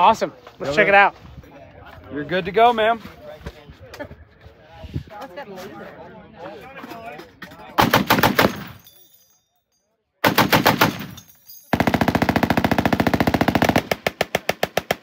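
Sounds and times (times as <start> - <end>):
heavy machine gun firing bursts: 7.8 - 8.8, 10.2 - 15.0.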